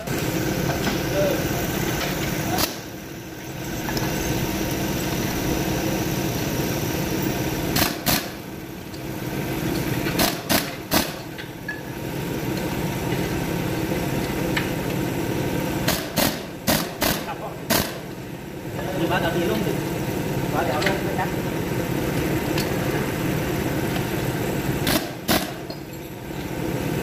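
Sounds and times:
pneumatic impact wrench rattling: 0:07.7 - 0:08.4, 0:09.7 - 0:11.6, 0:15.8 - 0:18.1, 0:24.8 - 0:26.4
short sharp air blasts: 0:07.7 - 0:08.4, 0:10.2 - 0:11.2, 0:15.8 - 0:18.1, 0:24.8 - 0:25.7.

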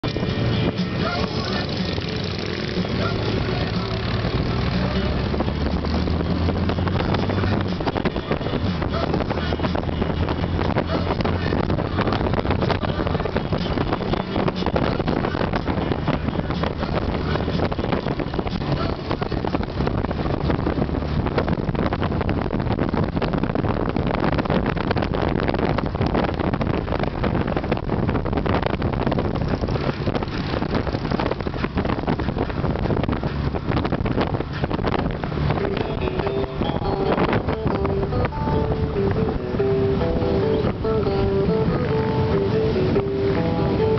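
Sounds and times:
wind rushing over microphone: 0:00.0 - 0:43.9
trike engine running: 0:00.1 - 0:21.1, 0:28.9 - 0:43.9.

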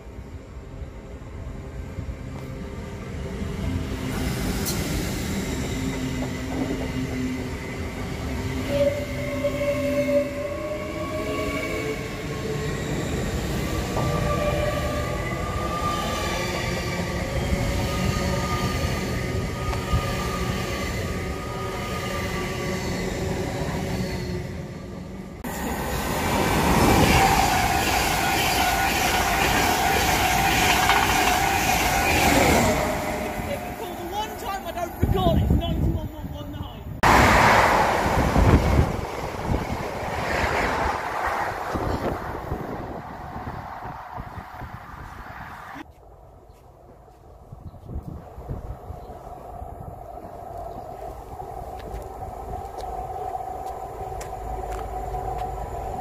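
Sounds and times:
train traction whine rising: 0:00.0 - 0:36.0
express train passing: 0:00.0 - 0:56.0
rail rumble: 0:00.0 - 0:56.0.

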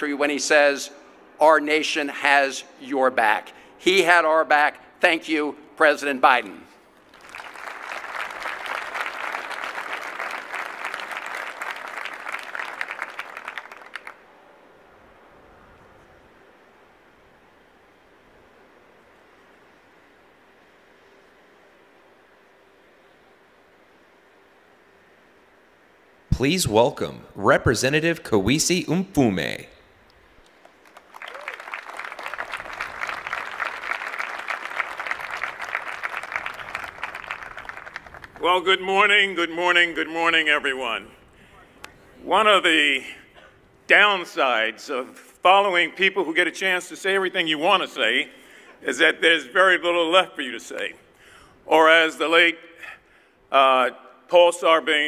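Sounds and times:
audience applauding: 0:07.1 - 0:14.3, 0:30.6 - 0:38.5.

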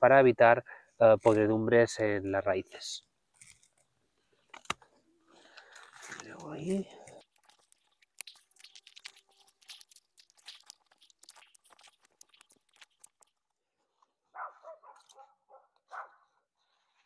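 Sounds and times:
dry plant material crackling: 0:05.4 - 0:13.5.

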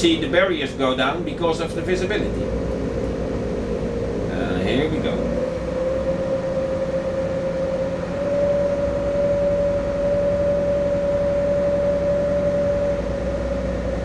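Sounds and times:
boat engines droning: 0:00.0 - 0:14.0.

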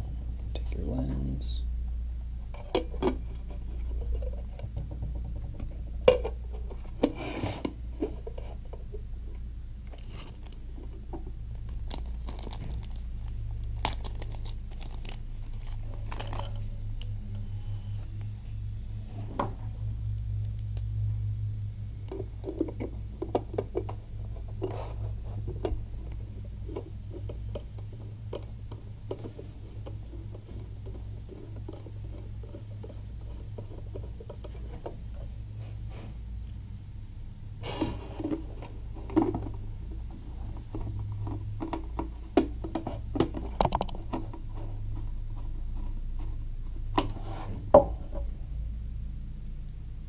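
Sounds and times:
steady low hum: 0:00.0 - 0:50.0
plastic bag crinkling: 0:11.7 - 0:16.6.

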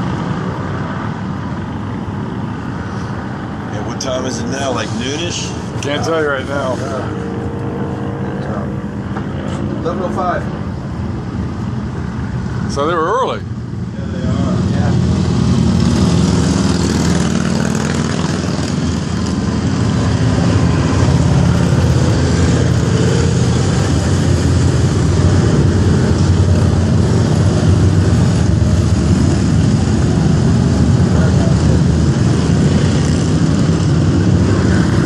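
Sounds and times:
cars passing: 0:00.0 - 0:35.0
motorcycles riding past: 0:14.2 - 0:35.0.

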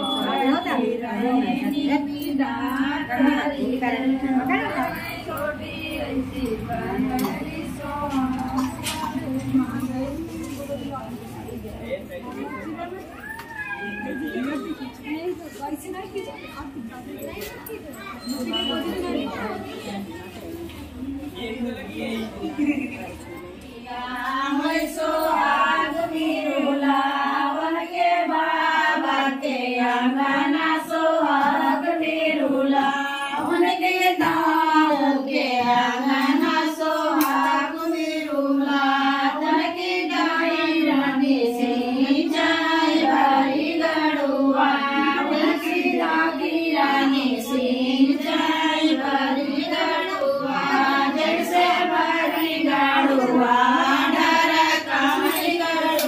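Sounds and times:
women singing: 0:00.0 - 0:10.2, 0:23.7 - 0:56.0.

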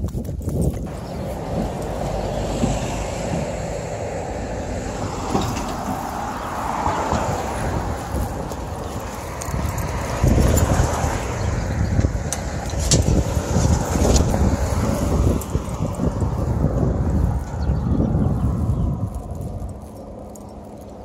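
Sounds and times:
road traffic: 0:00.0 - 0:21.0
wind rumbling on microphone: 0:00.0 - 0:21.0
car passing by: 0:00.9 - 0:18.8.

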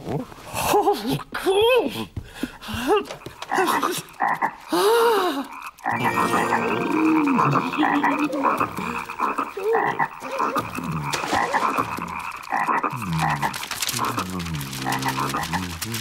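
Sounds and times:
cartoon frogs croaking: 0:03.4 - 0:04.8, 0:05.4 - 0:16.0.

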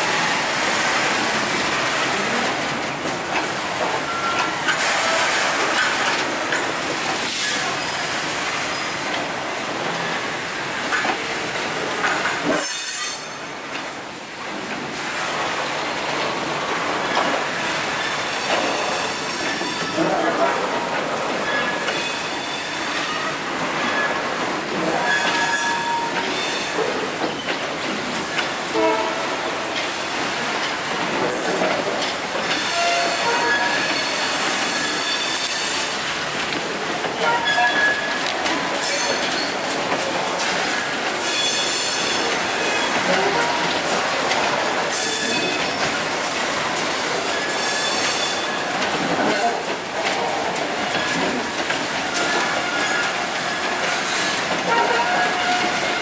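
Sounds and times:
train wheels rumbling and clattering: 0:00.0 - 0:56.0
high wheel squeals: 0:32.6 - 0:35.9.

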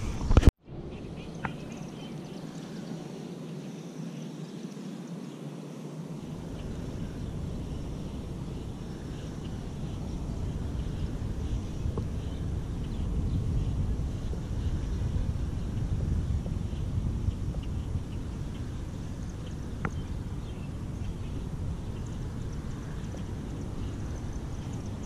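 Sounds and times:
wind buffeting microphone: 0:00.0 - 0:03.1, 0:06.1 - 0:25.0
low rumble: 0:06.3 - 0:25.0.

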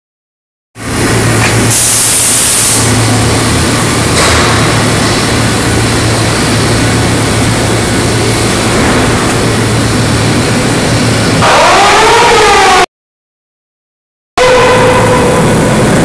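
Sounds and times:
loud industrial noise: 0:00.8 - 0:12.9, 0:14.4 - 0:16.0
constant low hum: 0:02.7 - 0:11.4.

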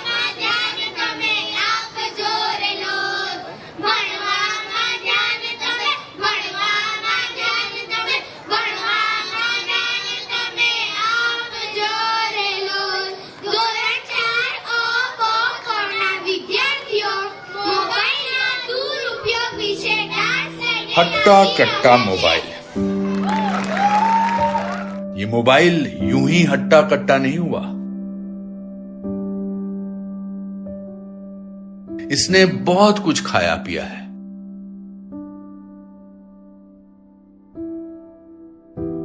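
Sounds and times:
children singing into microphones: 0:00.0 - 0:22.8.

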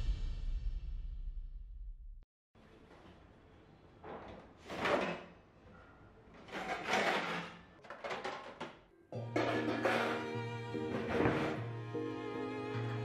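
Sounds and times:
metal scraping against metal: 0:06.4 - 0:07.8, 0:09.2 - 0:11.6
background music: 0:09.2 - 0:13.0.

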